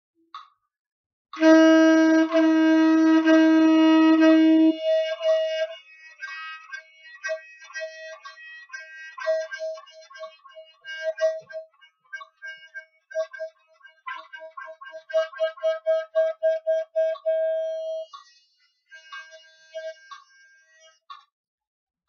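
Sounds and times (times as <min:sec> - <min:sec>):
saxophone playing: 0:01.4 - 0:11.6, 0:14.2 - 0:18.2, 0:18.9 - 0:21.0.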